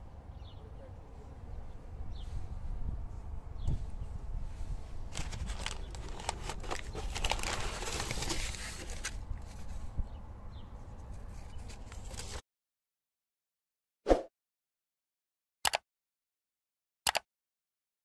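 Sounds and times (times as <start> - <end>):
packaging rustling: 5.1 - 9.8, 11.3 - 12.4.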